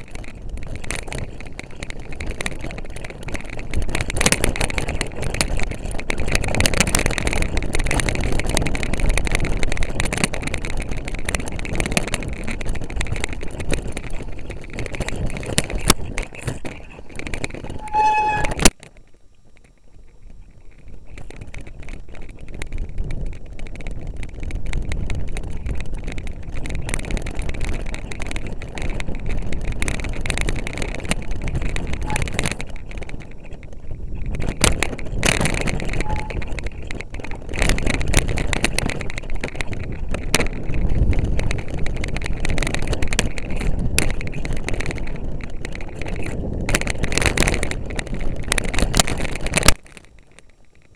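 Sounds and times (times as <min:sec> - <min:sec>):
wind on microphone: 0:00.0 - 0:18.9, 0:19.5 - 0:50.9
mountain bike rattling: 0:00.0 - 0:50.9
brief squeal: 0:17.7 - 0:18.6, 0:36.0 - 0:36.4.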